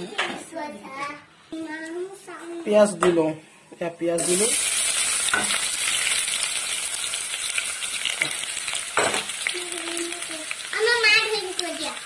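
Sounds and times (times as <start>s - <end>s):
onions sizzling in hot oil: 4.1s - 12.0s.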